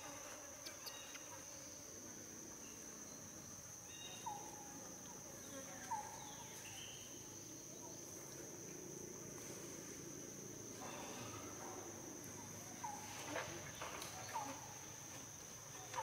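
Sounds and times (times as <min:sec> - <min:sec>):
insects droning: 0:00.0 - 0:16.0.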